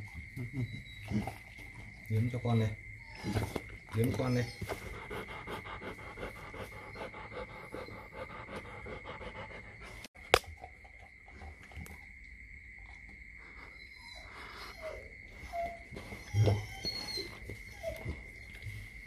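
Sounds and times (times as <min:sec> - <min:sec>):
dog panting: 0:03.3 - 0:10.1.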